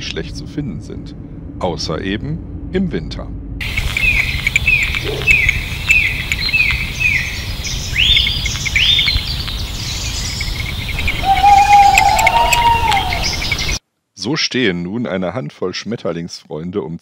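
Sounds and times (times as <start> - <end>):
low background noise: 0.0 - 17.0
bird chirps: 3.6 - 13.8
low bird call: 3.6 - 13.8.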